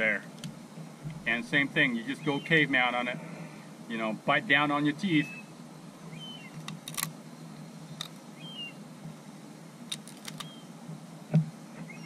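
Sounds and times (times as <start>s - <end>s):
steady low hum: 0.0s - 12.0s
faint bird chirps: 2.0s - 2.7s, 5.1s - 6.6s, 7.5s - 8.8s, 10.3s - 10.8s, 11.8s - 12.0s
crab shell cracking: 6.6s - 7.1s, 9.9s - 10.5s.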